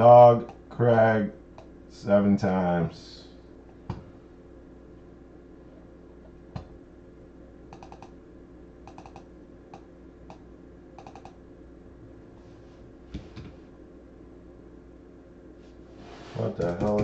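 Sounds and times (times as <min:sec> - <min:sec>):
faint steady hum: 0:00.0 - 0:17.0
computer keyboard typing: 0:07.7 - 0:08.1, 0:08.8 - 0:09.3, 0:11.0 - 0:11.4, 0:16.6 - 0:17.0.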